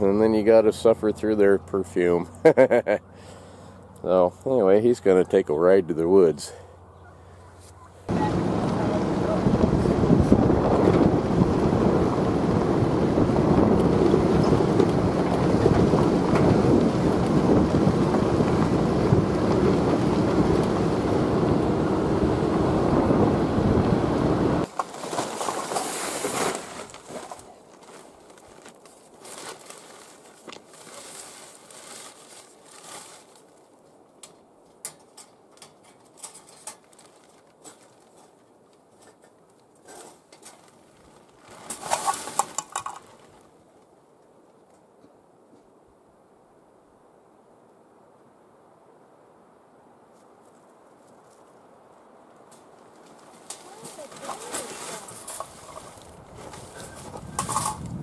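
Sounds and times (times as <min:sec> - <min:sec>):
vehicle rumbling on gravel road: 0:00.0 - 0:33.6, 0:35.8 - 0:43.8, 0:52.5 - 0:58.0
plastic bag crinkling: 0:24.7 - 0:33.7, 0:36.4 - 0:38.4, 0:39.9 - 0:43.5, 0:53.0 - 0:57.8.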